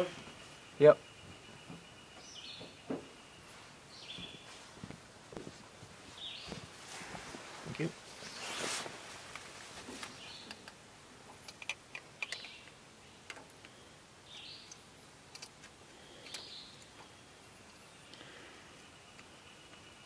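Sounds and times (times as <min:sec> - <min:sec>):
rustle: 0:00.0 - 0:20.0
bird chirps: 0:00.3 - 0:04.6.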